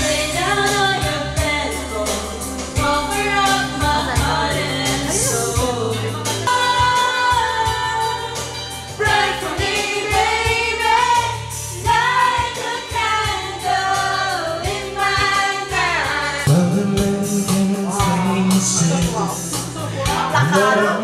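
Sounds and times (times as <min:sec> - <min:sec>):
woman singing karaoke: 0:00.0 - 0:16.5
karaoke backing track: 0:00.0 - 0:21.0
man singing: 0:04.0 - 0:06.4, 0:16.5 - 0:21.0.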